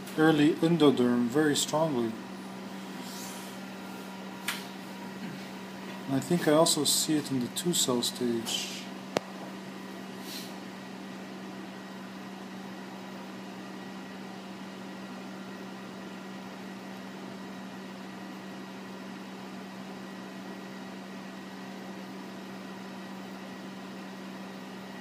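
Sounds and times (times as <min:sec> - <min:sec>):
lab equipment humming: 0:00.0 - 0:25.0.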